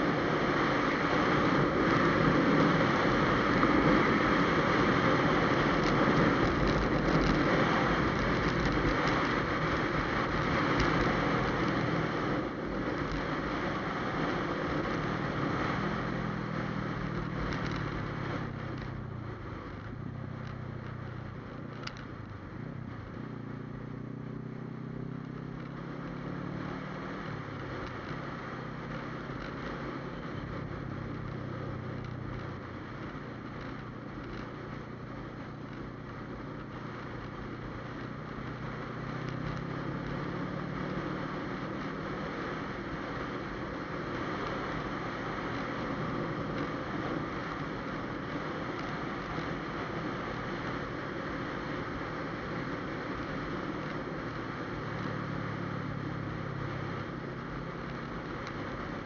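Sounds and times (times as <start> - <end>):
motorcycle engine revving: 0.0 - 34.0.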